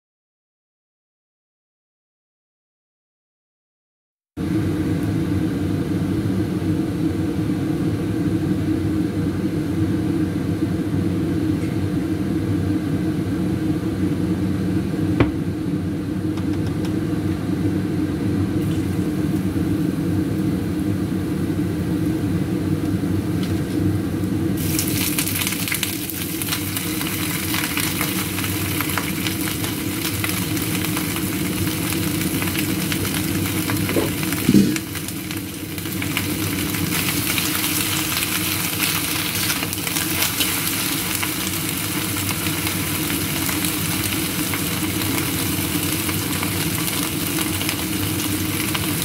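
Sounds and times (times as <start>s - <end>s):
stove low rumble: 4.4s - 49.0s
lettuce sizzling in hot oil: 24.6s - 49.0s.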